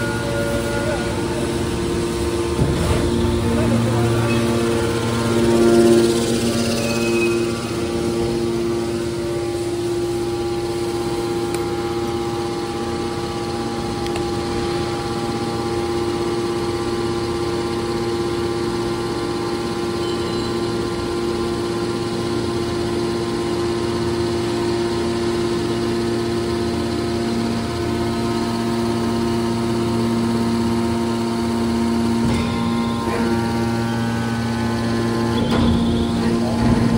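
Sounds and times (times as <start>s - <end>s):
hydraulic pump motor humming: 0.0s - 36.9s.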